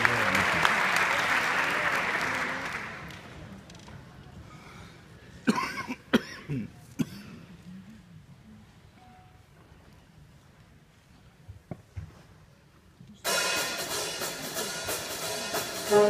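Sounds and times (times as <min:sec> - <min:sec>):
audience applause: 0:00.0 - 0:03.5
audience coughing: 0:05.4 - 0:07.5.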